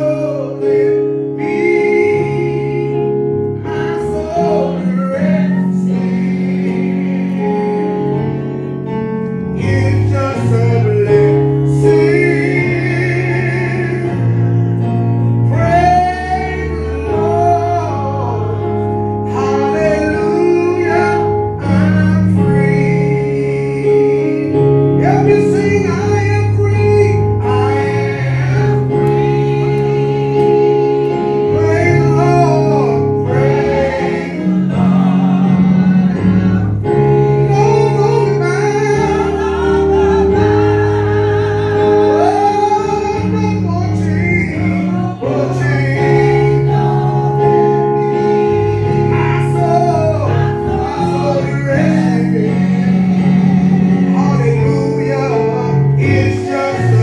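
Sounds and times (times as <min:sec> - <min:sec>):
sustained chords: 0:00.0 - 0:57.0
person singing with vibrato: 0:15.5 - 0:57.0.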